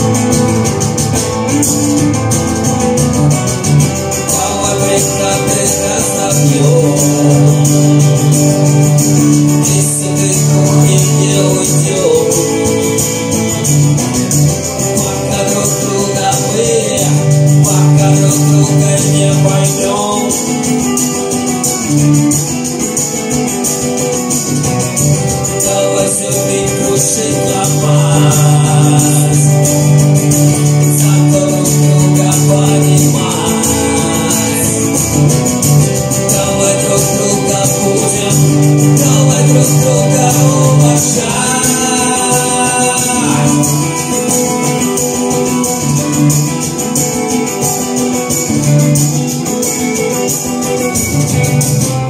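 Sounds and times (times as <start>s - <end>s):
acoustic guitar strummed: 0.0s - 52.0s
man singing into a microphone: 3.9s - 23.0s, 25.2s - 46.8s.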